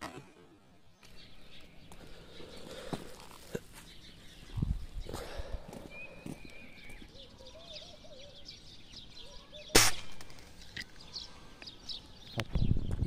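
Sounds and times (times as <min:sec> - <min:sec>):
birds chirping faintly: 0:00.2 - 0:13.0
rifle shot: 0:09.7 - 0:10.4.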